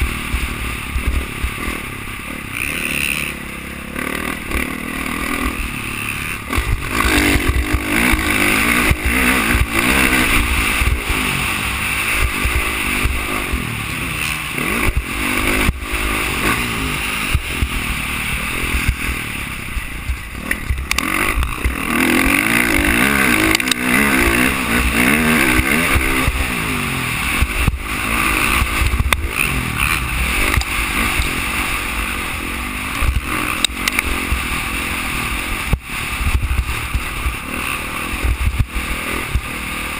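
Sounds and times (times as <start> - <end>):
dirt bike engine revving: 0.0 - 39.9
sharp knocks from rough track: 6.5 - 11.3.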